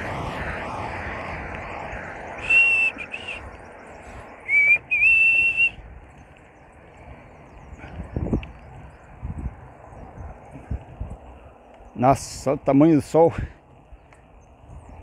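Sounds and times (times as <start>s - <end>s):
person whistling notes: 2.4s - 3.4s, 4.4s - 5.8s.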